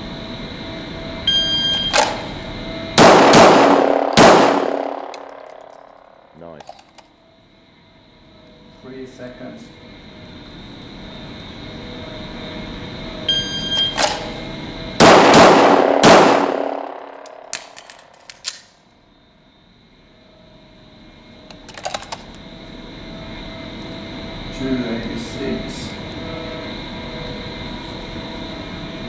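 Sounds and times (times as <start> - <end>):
pistol shots echoing indoors: 3.0 - 5.8, 15.0 - 18.7.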